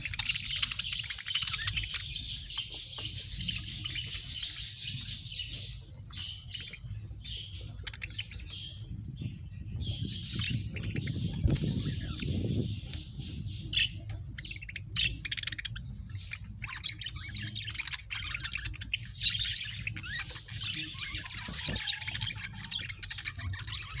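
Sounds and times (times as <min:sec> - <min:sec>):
budgerigars chirping and chattering: 0:00.0 - 0:24.0
low background rumble: 0:00.0 - 0:24.0.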